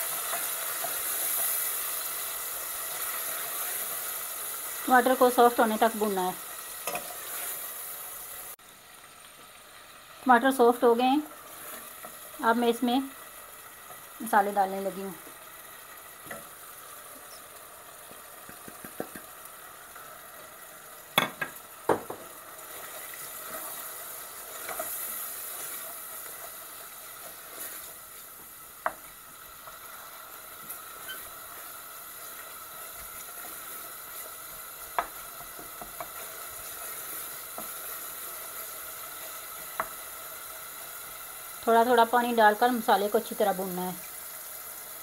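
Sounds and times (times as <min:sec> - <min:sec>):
masala sizzling in a saucepan: 0:00.0 - 0:45.0
wooden spoon knocking on pan: 0:18.4 - 0:19.3, 0:21.2 - 0:22.3, 0:34.9 - 0:36.2.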